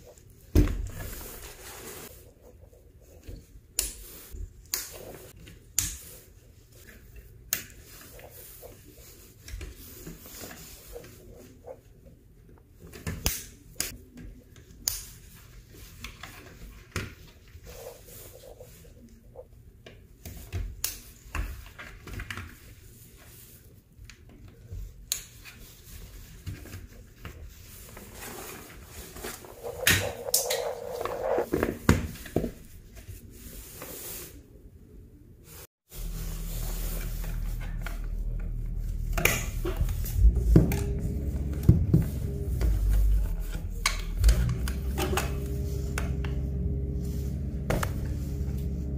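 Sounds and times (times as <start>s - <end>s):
steady low hum: 27.7s - 31.5s, 35.9s - 48.9s.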